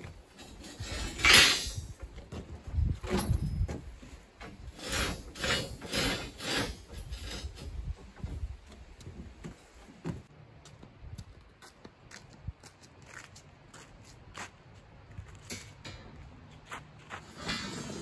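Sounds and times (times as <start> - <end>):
concrete blocks scraping: 0.0 - 2.2, 2.8 - 8.5, 17.1 - 18.0.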